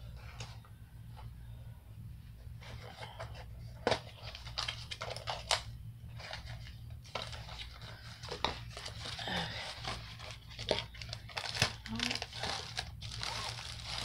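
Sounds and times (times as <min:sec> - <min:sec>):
steady low hum: 0:00.0 - 0:14.0
packaging rustling and scraping: 0:02.5 - 0:14.0.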